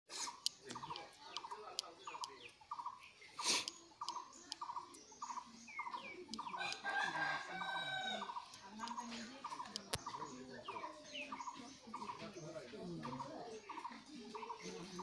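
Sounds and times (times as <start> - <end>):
sharp clicks: 0.3 - 6.9, 8.3 - 10.3.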